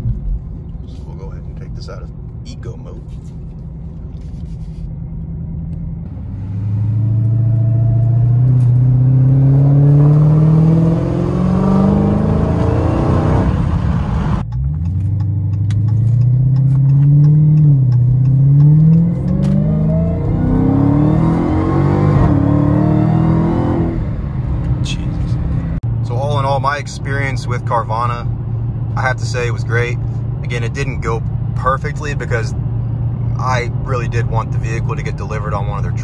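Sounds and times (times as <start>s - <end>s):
supercharger whine: 3.5s - 36.0s
car engine accelerating through gears: 5.6s - 25.8s.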